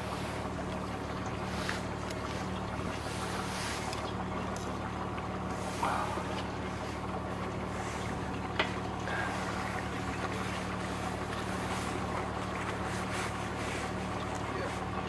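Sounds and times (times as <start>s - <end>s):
boat engine humming: 0.0s - 15.0s
wind: 0.0s - 15.0s
water hiss: 1.3s - 4.1s.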